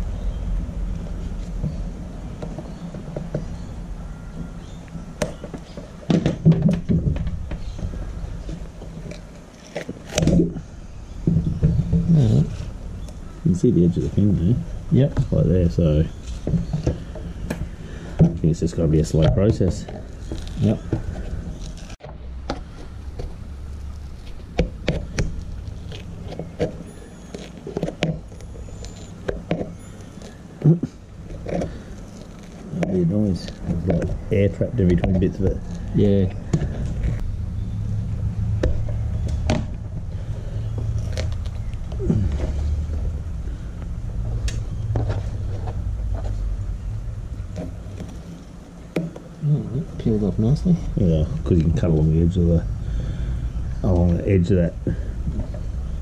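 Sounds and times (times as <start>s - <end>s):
steady low hum: 0.0s - 56.0s
glued rubber peeling with crackles: 0.9s - 37.3s, 38.4s - 52.1s
knocks and scrapes: 5.2s - 37.3s, 38.5s - 49.3s.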